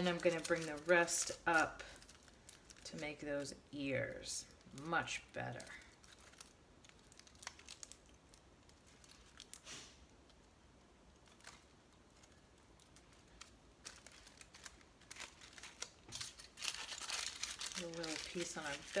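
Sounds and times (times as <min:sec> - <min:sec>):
aluminium foil crinkling: 0:00.0 - 0:10.5, 0:11.1 - 0:19.0.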